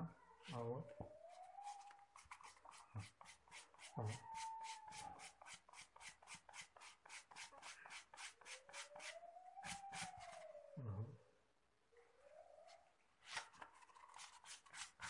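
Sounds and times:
sandpaper rubbing on rubber: 0:01.6 - 0:10.3, 0:14.1 - 0:15.0.

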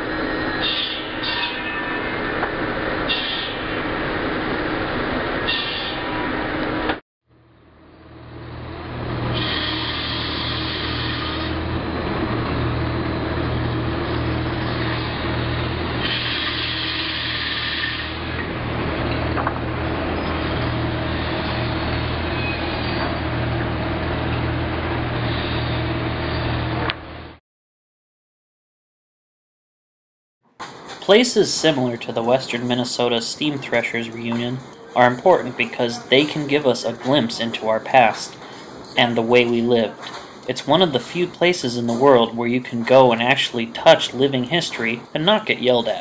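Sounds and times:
conveyor machinery hum: 0:00.0 - 0:27.4, 0:30.6 - 0:46.0
high-pitched machine whine: 0:00.0 - 0:27.4
circular saw cutting log: 0:09.2 - 0:11.8, 0:13.8 - 0:18.4.

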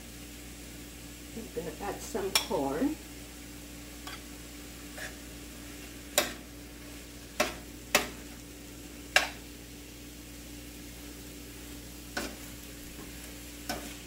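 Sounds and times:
vegetables sizzling in a pan: 0:00.0 - 0:14.0
spoon stirring vegetables: 0:02.0 - 0:02.6, 0:04.0 - 0:08.4, 0:09.0 - 0:09.5, 0:11.6 - 0:14.0
spoon knocking on metal pan: 0:02.3 - 0:02.5, 0:09.1 - 0:09.4.

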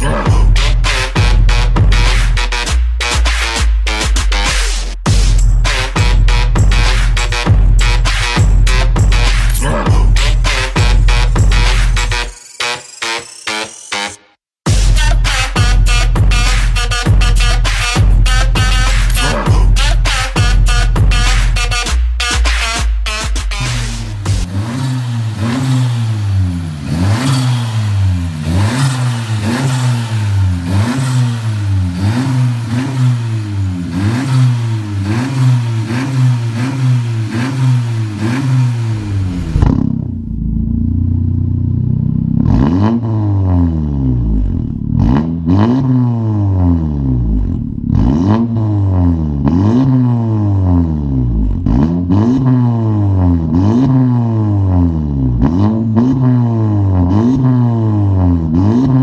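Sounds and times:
car engine revving: 0:00.0 - 0:13.0, 0:14.7 - 0:59.0.

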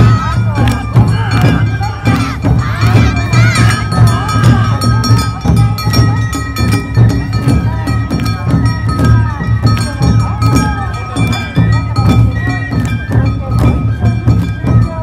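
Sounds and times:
hand gongs clanging: 0:00.0 - 0:15.0
taiko drums beating: 0:00.0 - 0:15.0
voices calling out: 0:00.0 - 0:15.0.

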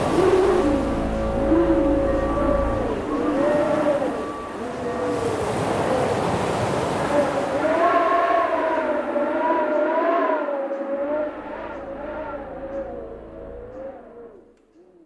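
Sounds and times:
low rumble: 0:00.0 - 0:04.4, 0:11.2 - 0:14.6
wavering pitched drone: 0:00.0 - 0:04.9, 0:10.9 - 0:14.6.

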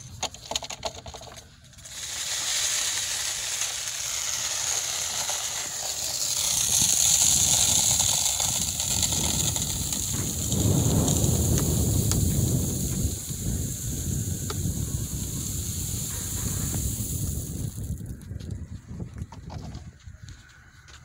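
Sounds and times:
gravel pouring from wheelbarrow: 0:01.8 - 0:18.1.

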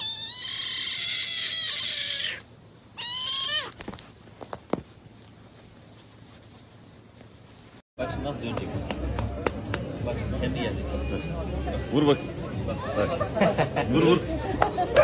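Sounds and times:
kitten mewing: 0:00.0 - 0:03.9.

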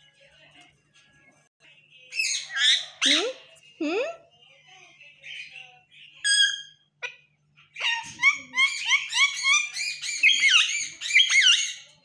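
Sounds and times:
parakeet chattering chirps: 0:07.8 - 0:11.8.

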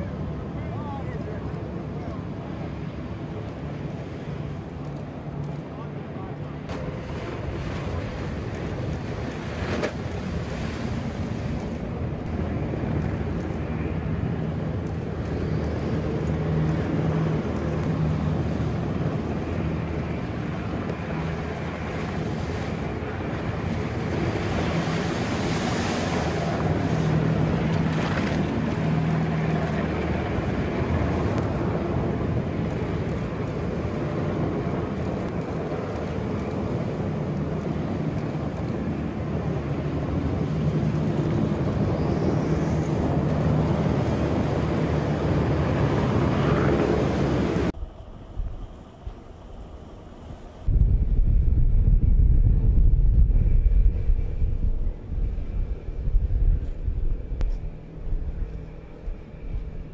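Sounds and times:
boat engines droning: 0:00.0 - 0:51.0, 0:53.1 - 0:59.9
wake and spray splashing: 0:06.7 - 0:11.9, 0:20.3 - 0:47.7
wind buffeting microphone: 0:06.8 - 0:59.9.

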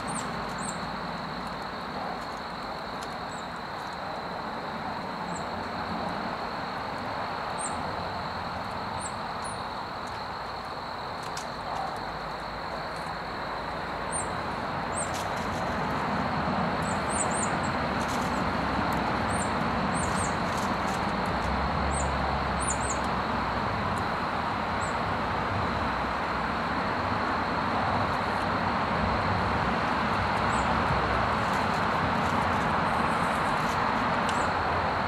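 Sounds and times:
songbird chirps: 0:00.0 - 0:04.1, 0:19.2 - 0:23.2
traffic rumble: 0:00.0 - 0:35.0.

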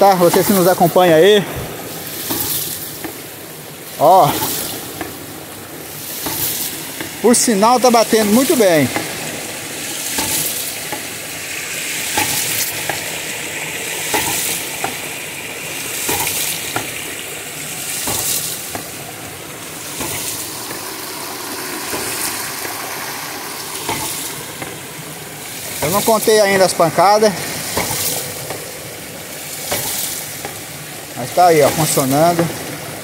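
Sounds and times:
water rushing out of valve: 0:00.0 - 0:33.0.

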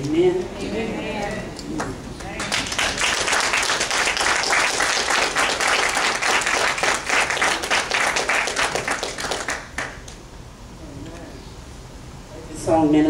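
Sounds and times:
crowd applauding: 0:01.8 - 0:10.2.

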